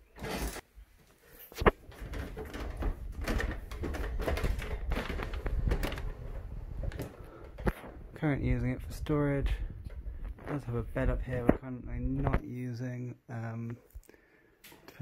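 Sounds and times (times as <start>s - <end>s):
footsteps climbing stairs: 1.7s - 8.1s.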